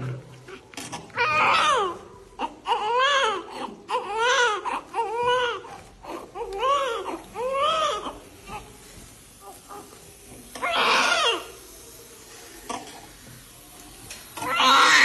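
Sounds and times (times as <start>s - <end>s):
baby crying: 1.2s - 8.2s, 10.6s - 11.5s, 14.4s - 15.0s.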